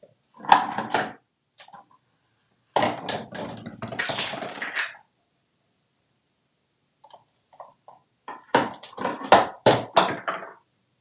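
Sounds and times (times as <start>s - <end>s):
plastic cups clattering on countertop: 7.6s - 10.6s.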